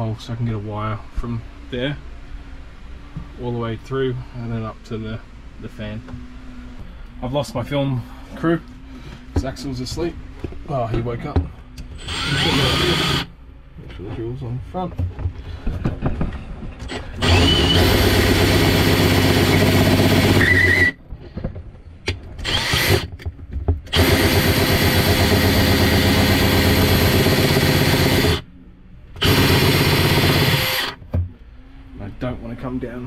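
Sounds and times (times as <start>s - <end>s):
cordless drill boring through panel: 12.0s - 13.3s, 16.9s - 21.0s, 22.4s - 23.1s, 23.9s - 28.4s, 29.2s - 31.0s.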